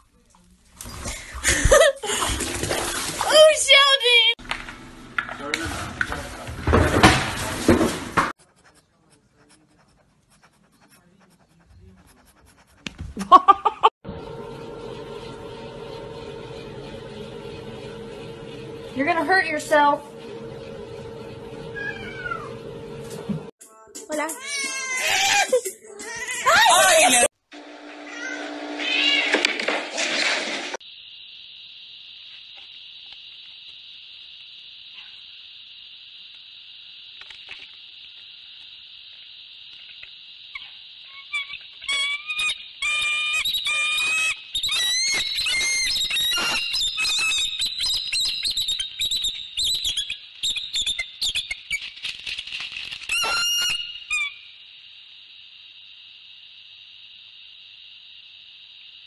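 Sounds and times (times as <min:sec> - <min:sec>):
steady high drone: 0:14.1 - 0:23.5.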